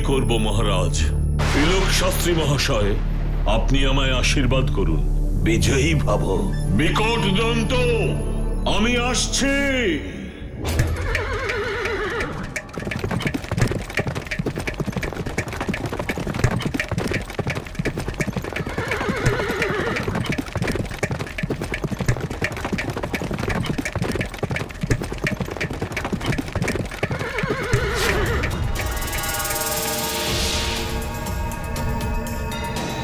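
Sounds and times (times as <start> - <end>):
horse whinnying: 10.8 - 13.7, 18.2 - 20.8, 26.7 - 28.6
horse hoofbeats galloping: 10.8 - 29.3.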